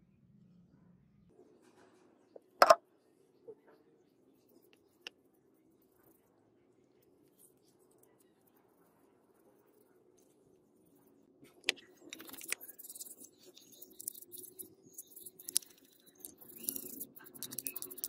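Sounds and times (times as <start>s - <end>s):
toothbrush scrubbing plastic: 7.3s - 18.0s.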